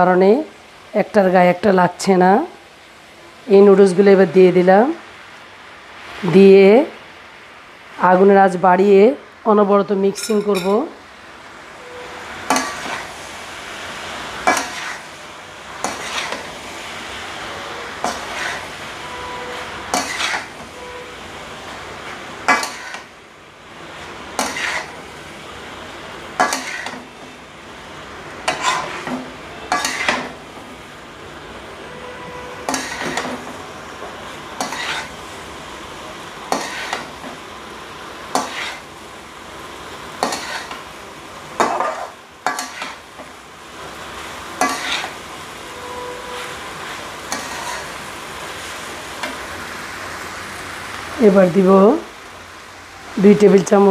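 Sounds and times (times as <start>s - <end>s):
food sizzling: 0.0s - 53.9s
metal spatula scraping a wok: 12.5s - 13.2s, 14.4s - 15.1s, 15.8s - 16.5s, 17.7s - 21.1s, 22.5s - 23.1s, 24.4s - 25.0s, 26.4s - 27.1s, 28.4s - 30.3s, 31.9s - 33.5s, 34.6s - 35.2s, 36.5s - 37.1s, 38.3s - 38.9s, 40.2s - 40.8s, 41.6s - 43.0s, 44.6s - 48.0s.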